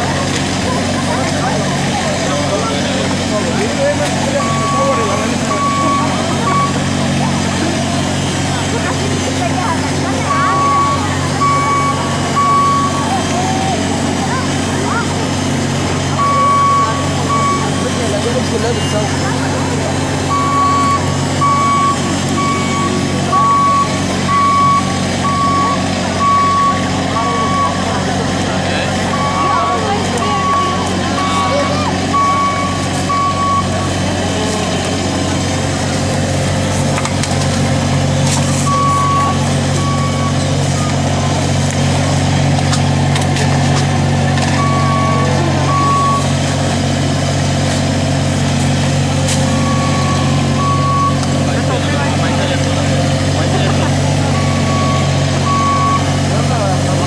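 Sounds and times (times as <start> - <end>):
vehicle warning beeper: 1.0 - 7.4, 10.1 - 13.8, 16.0 - 19.2, 20.2 - 28.1, 29.0 - 35.1, 38.4 - 41.4, 44.4 - 46.4, 49.1 - 52.4, 53.3 - 57.0.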